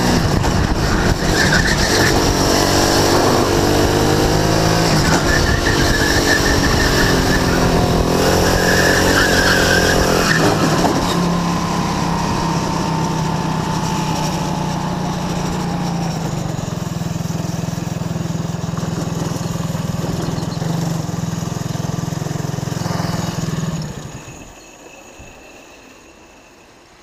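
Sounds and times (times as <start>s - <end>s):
go-kart engine running at low revs: 0.0s - 24.5s
faint falling whine: 9.3s - 18.0s.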